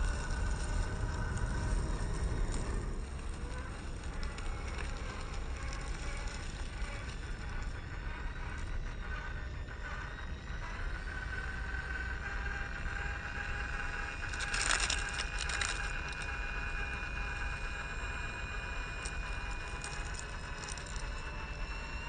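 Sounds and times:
tyres scraping on gravel: 0.0s - 8.8s, 14.0s - 21.7s
toy car motor whining: 0.0s - 22.0s.

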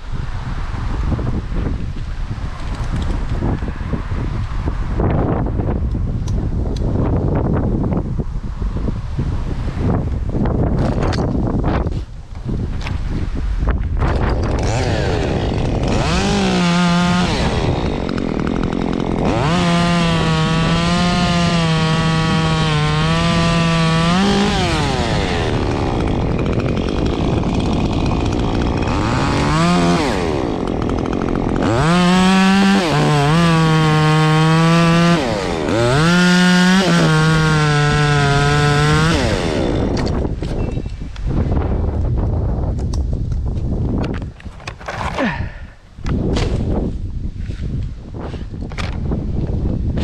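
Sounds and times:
chainsaw revving and cutting wood: 14.1s - 40.6s.

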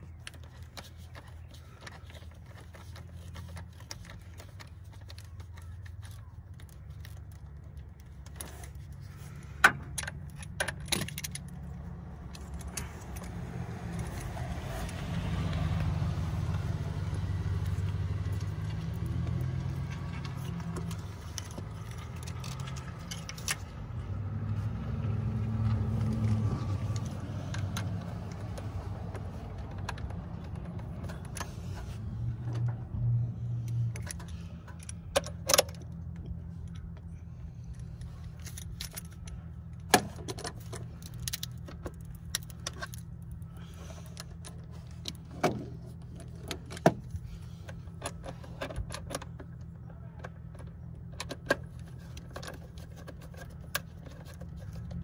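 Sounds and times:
metal tools clinking and rattling: 0.0s - 14.9s, 16.6s - 23.8s, 33.6s - 55.0s.

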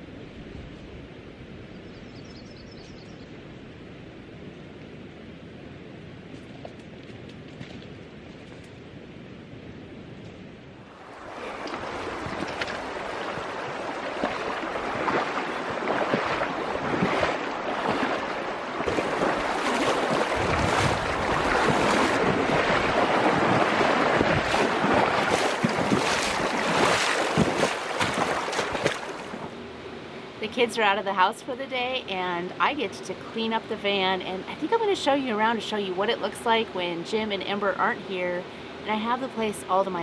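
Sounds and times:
river current rushing: 10.8s - 31.0s
sharp water splashes: 10.9s - 29.5s.

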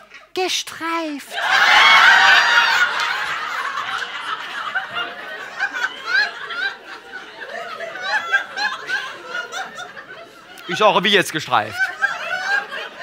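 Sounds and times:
audience laughing: 1.3s - 13.0s.

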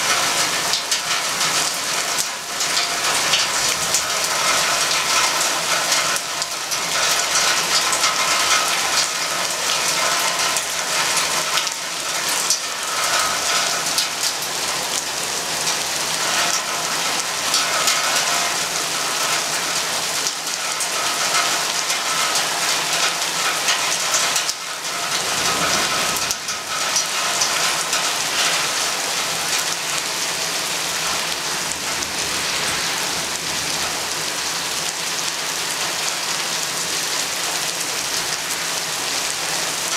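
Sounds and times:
heavy rain falling: 0.0s - 39.9s.

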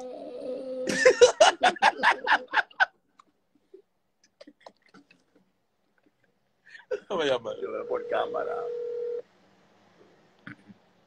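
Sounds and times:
man laughing hard: 0.9s - 3.0s.

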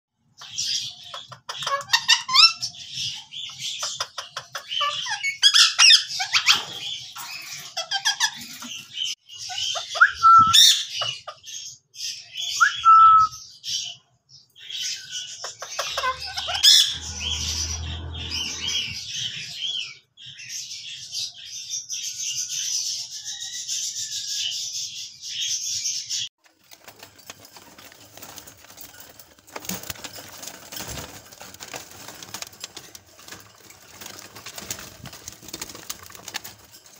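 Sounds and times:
parakeets calling shrilly: 0.4s - 8.9s, 15.0s - 19.8s.

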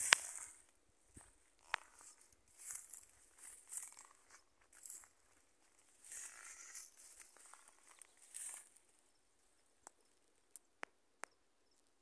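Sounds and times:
leaves rustling: 0.0s - 0.6s, 6.0s - 8.7s
footsteps on dry grass: 0.0s - 8.8s.

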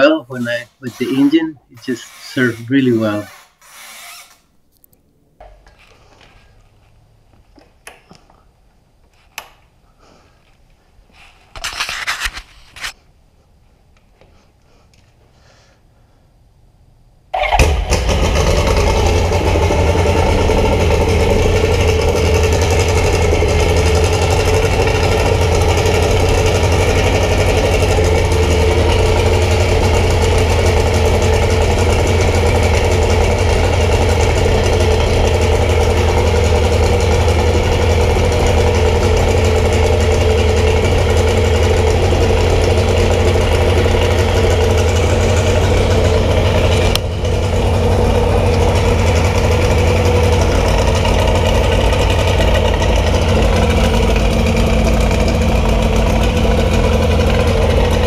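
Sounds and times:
aircraft engine running: 17.5s - 58.0s.

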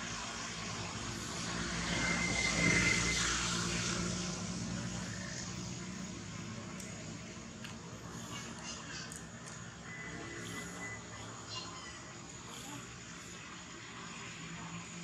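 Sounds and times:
passing engine drone: 0.0s - 8.6s.

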